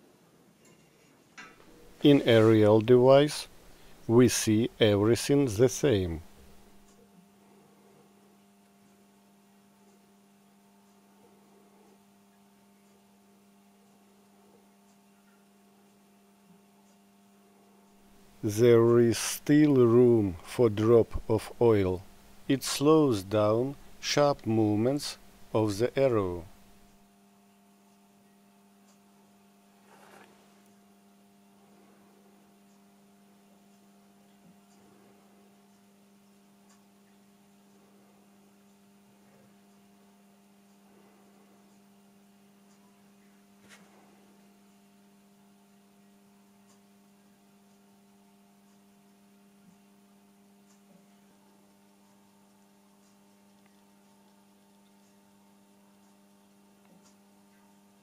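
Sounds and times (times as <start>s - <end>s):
low electrical hum: 0.0s - 58.0s
faint clicks: 50.6s - 55.2s.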